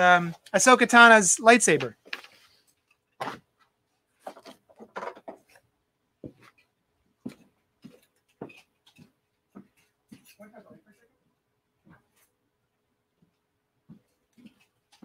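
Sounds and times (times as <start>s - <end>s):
soft knocks and rustles: 6.2s - 10.4s.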